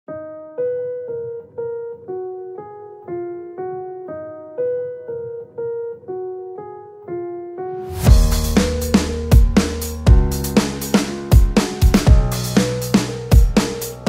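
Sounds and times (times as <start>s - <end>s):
simple keyboard melody: 0.1s - 14.0s.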